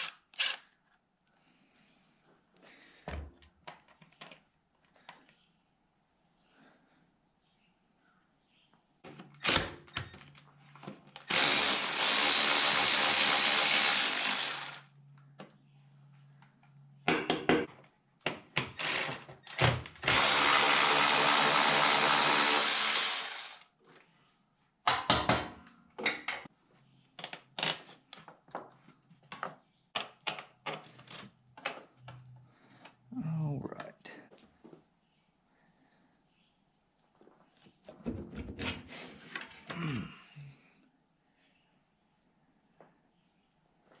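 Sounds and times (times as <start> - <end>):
cordless power tool running: 11.2 - 14.8, 20.0 - 23.6.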